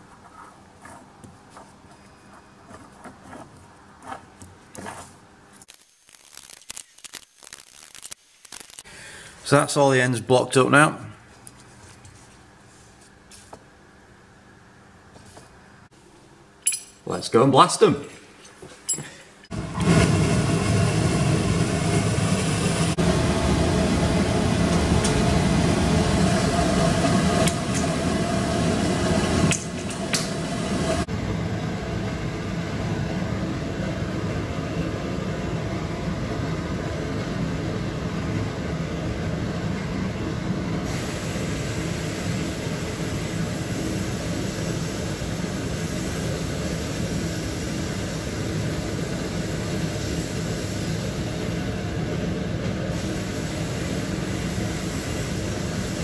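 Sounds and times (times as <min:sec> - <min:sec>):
abrasive blasting hiss: 0:40.8 - 0:51.6, 0:52.9 - 0:56.0.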